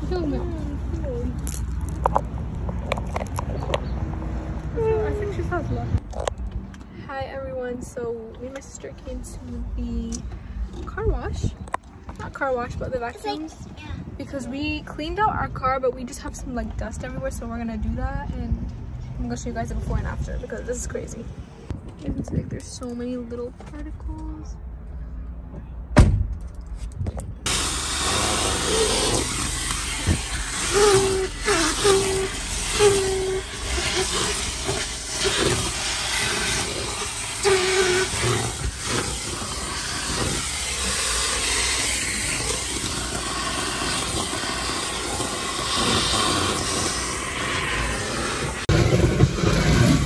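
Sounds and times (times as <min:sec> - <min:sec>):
vacuum hose sucking: 0:27.5 - 0:50.0.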